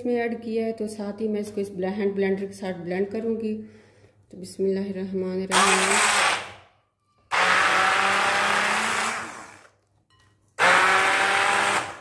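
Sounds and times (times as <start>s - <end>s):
hand blender running: 5.6s - 6.6s, 7.3s - 9.7s, 10.6s - 12.0s.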